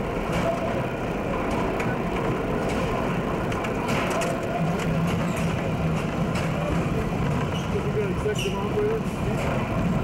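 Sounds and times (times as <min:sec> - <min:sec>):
subway train rumbling: 0:00.0 - 0:10.0.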